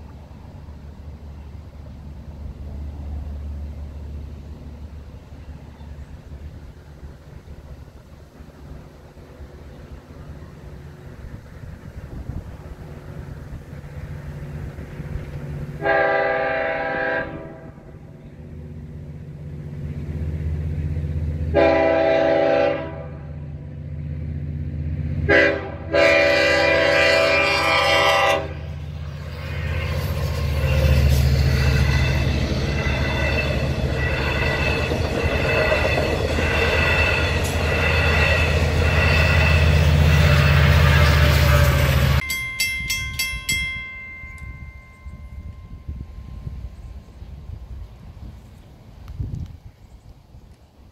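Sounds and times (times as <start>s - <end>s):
locomotive engine rumble: 0.0s - 50.9s
train horn blasts: 15.8s - 18.0s, 21.5s - 23.4s, 25.2s - 28.8s, 30.8s - 42.2s.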